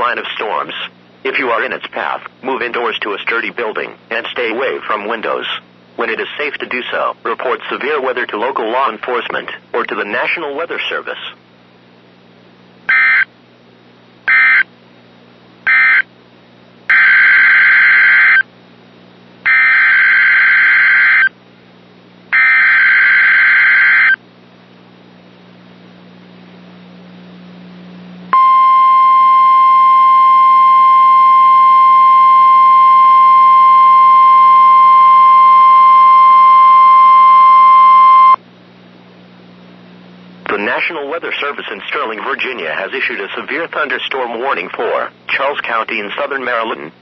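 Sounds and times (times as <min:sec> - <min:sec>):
buzzing data tone bursts: 0:12.9 - 0:13.3, 0:14.3 - 0:14.7, 0:15.7 - 0:16.1, 0:16.9 - 0:18.4, 0:19.5 - 0:21.3, 0:22.3 - 0:24.2, 0:28.4 - 0:38.4
steady attention tone: 0:28.3 - 0:38.4.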